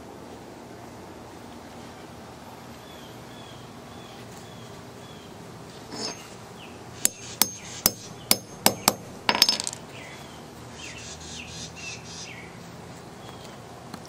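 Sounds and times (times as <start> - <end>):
birds chirping: 1.8 - 13.7
hammer striking metal tool: 7.0 - 9.8.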